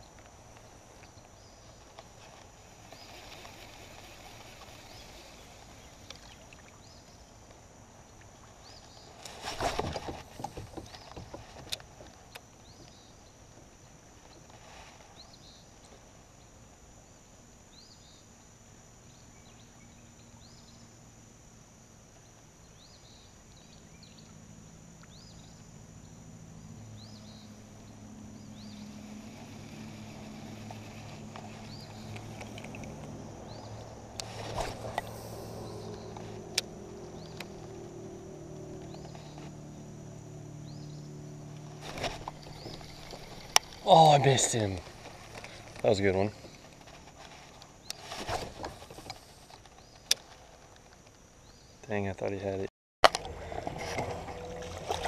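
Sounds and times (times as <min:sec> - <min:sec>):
river ambience: 0:00.0 - 0:55.0
low steady hum: 0:53.0 - 0:55.0.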